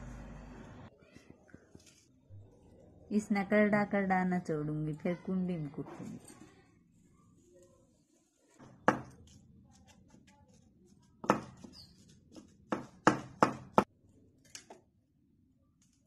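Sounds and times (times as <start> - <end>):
pestle thudding in stone mortar: 8.6 - 9.2, 11.2 - 11.7, 12.3 - 13.9.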